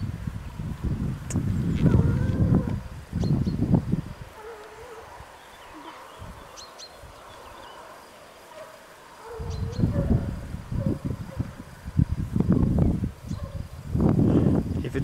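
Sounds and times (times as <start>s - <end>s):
rumbling noise on microphone: 0.0s - 4.3s
distant hunting dogs baying: 4.3s - 11.6s, 13.3s - 13.8s.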